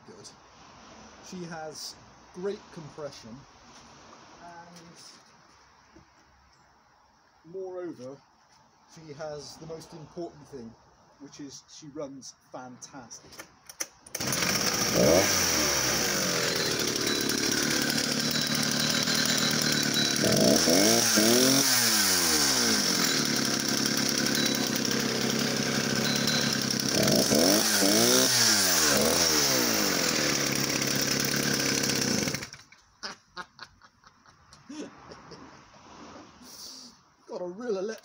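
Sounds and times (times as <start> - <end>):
chainsaw idling and revving: 14.1 - 32.8.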